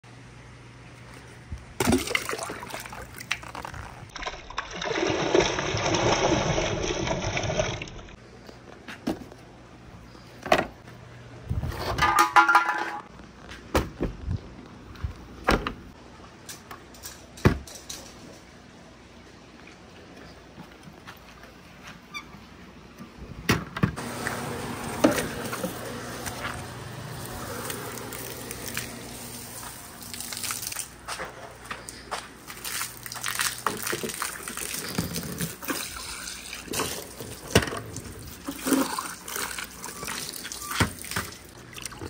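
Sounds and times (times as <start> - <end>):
water rushing: 24.0 - 30.9.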